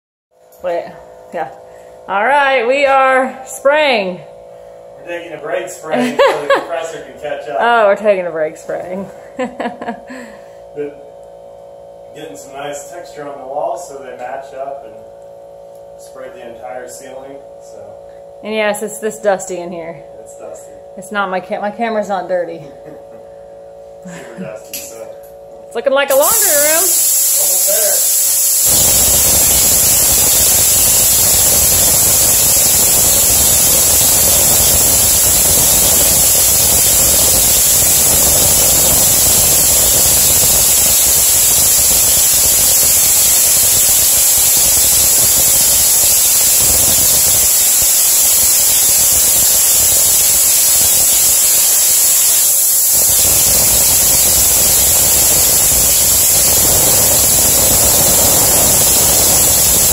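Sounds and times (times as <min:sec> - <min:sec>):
compressed air hissing from spray gun: 0:26.1 - 0:59.9.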